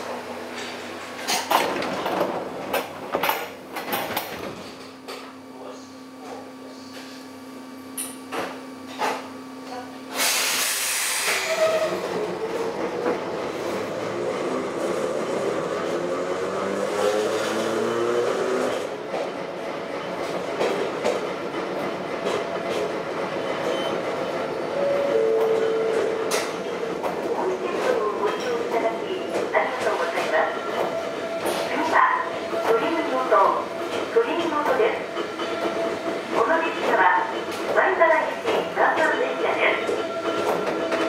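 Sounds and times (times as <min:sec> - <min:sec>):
air brakes hissing: 0:10.1 - 0:11.9.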